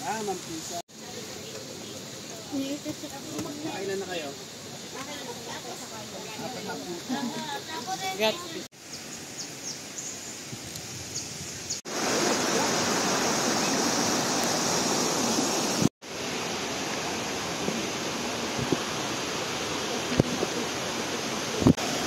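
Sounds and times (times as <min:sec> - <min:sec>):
water rushing over rocks: 0:11.8 - 0:22.0.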